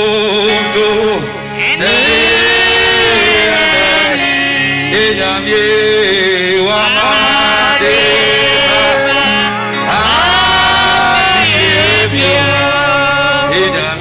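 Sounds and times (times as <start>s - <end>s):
instrumental accompaniment: 0.0s - 14.0s
man singing gospel song: 0.0s - 14.0s
steady bass: 0.0s - 14.0s.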